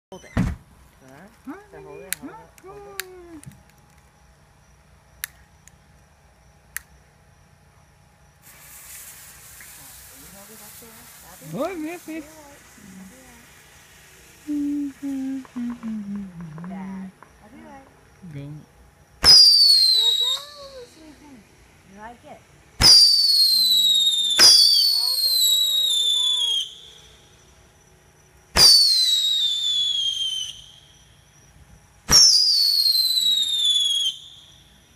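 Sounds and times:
faint background hum: 0.1s - 34.9s
whistling fireworks: 8.3s - 16.7s, 19.2s - 21.2s, 22.8s - 27.8s, 28.5s - 34.9s
sparkler hissing and sizzling: 8.4s - 15.8s, 19.2s - 22.2s, 22.8s - 27.1s.

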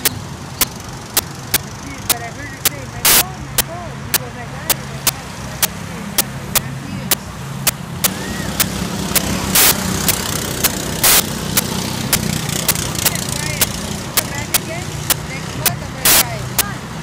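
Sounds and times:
car cabin drone: 0.0s - 16.8s
sharp clicks: 0.0s - 16.8s
short loud hissing bursts: 8.0s - 12.3s.

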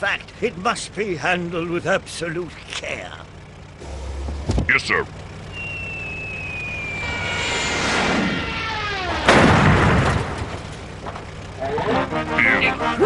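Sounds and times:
truck engine rumble: 0.0s - 13.0s
cartoon falling whistle: 5.5s - 9.3s
loud crash: 6.8s - 10.8s.

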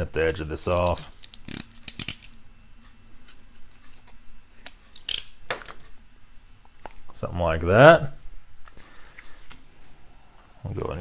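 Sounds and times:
scissors cutting foil pouch: 0.8s - 2.4s.

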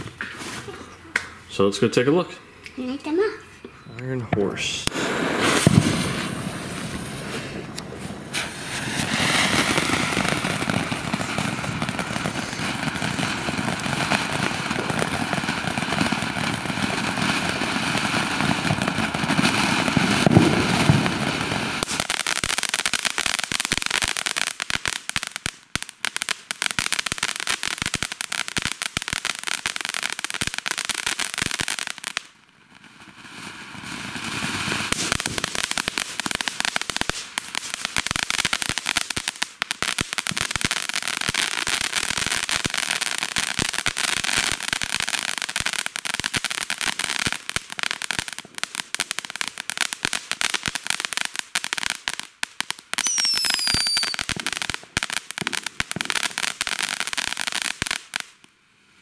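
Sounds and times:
firework crackling: 0.0s - 3.4s, 4.4s - 58.5s
firework rushing hiss: 4.6s - 24.6s, 33.3s - 49.0s, 53.0s - 58.2s
short falling whistle: 53.0s - 54.2s.

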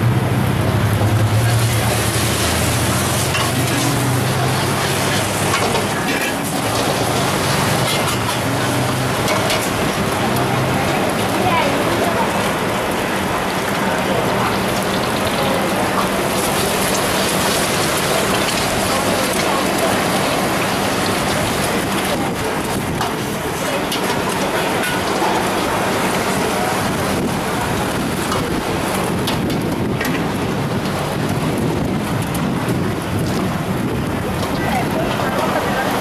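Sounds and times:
eggs sizzling in hot oil: 1.2s - 11.2s, 14.2s - 22.0s.

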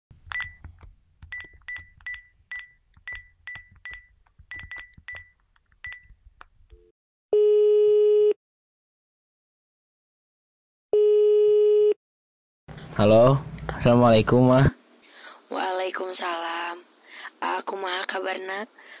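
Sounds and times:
phone keypad beeps: 0.3s - 0.7s, 1.3s - 6.1s
phone ringback tone: 6.8s - 8.4s.

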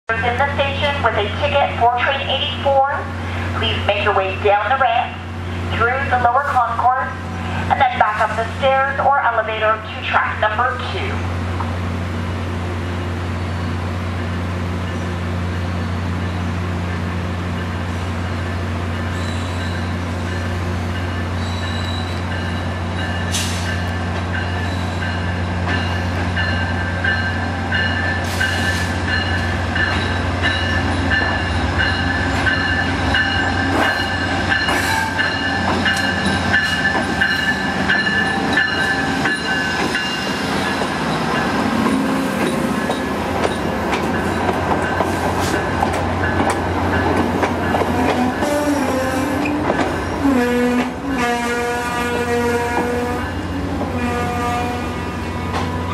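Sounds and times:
idling diesel locomotive drone: 0.1s - 55.9s
steel wheels squealing: 13.3s - 13.9s, 19.0s - 44.6s.

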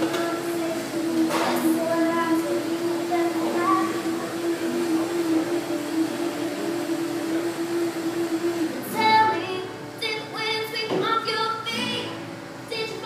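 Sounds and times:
low note held steady: 0.0s - 10.0s
high voice singing: 0.0s - 13.0s.

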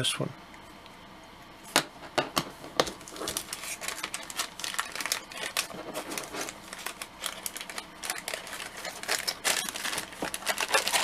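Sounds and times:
plastic bag crinkling: 2.8s - 11.0s.

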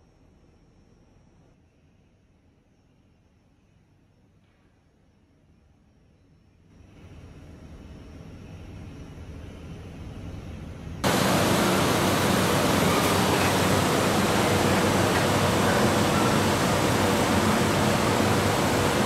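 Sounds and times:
kiln rushing noise: 11.0s - 19.0s.

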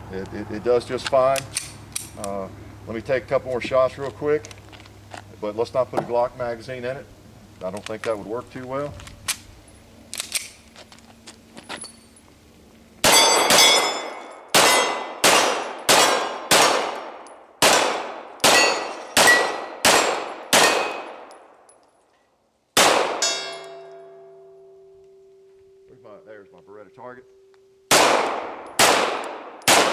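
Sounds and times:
metallic handling clicks: 1.0s - 2.4s, 10.1s - 12.1s
steel targets ringing: 13.0s - 16.3s, 18.4s - 21.2s, 23.1s - 27.9s
pistol shots: 13.0s - 21.4s, 22.8s - 23.8s, 27.9s - 29.9s.

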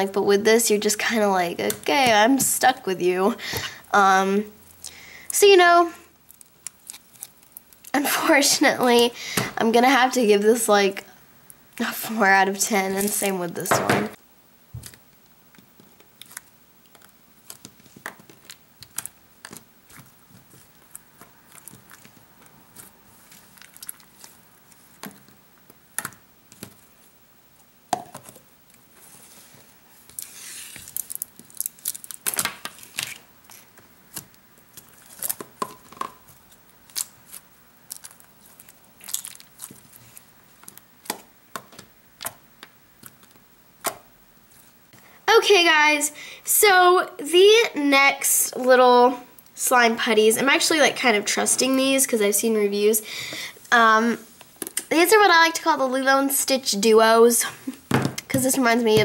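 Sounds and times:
plastic wrap crinkling and tearing: 6.2s - 8.0s, 14.8s - 25.8s, 30.0s - 41.2s.

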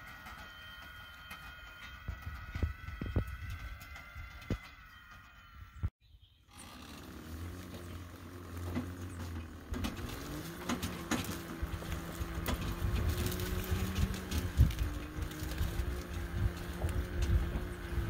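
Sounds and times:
electric motor whining: 6.5s - 18.0s
clicks and knocks from cultivator: 6.6s - 18.0s.

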